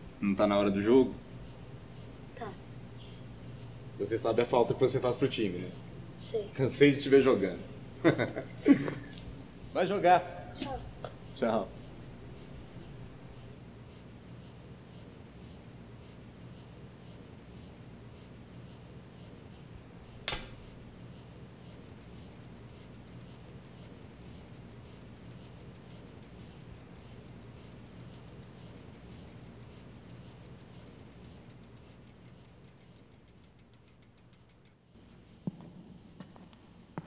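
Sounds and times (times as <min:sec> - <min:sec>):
bicycle freewheel ticking: 0:20.1 - 0:35.0
sharp click: 0:20.2 - 0:20.8.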